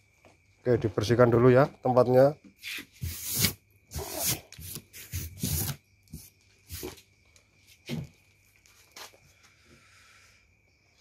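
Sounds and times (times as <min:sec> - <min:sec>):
rubbing and scraping a surface: 0:02.6 - 0:07.0.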